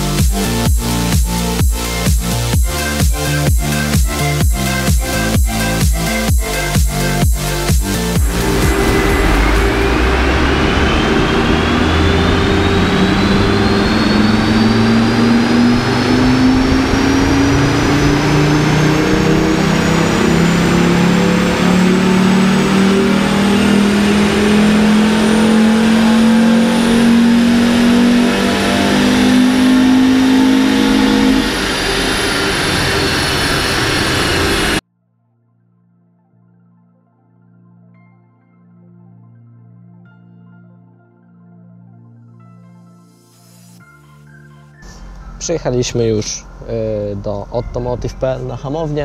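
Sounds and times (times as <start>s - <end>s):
car engine revving on dynamometer: 2.7s - 34.8s
thin rising whine: 5.0s - 34.8s.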